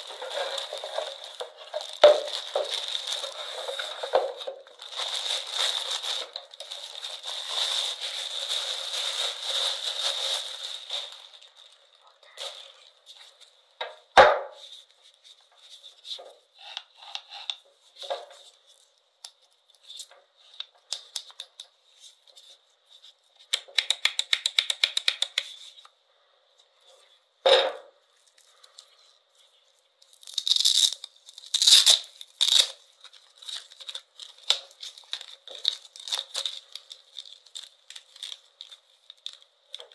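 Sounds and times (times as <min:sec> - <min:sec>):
plastic bag crinkling: 0:00.0 - 0:13.4, 0:30.1 - 0:39.9.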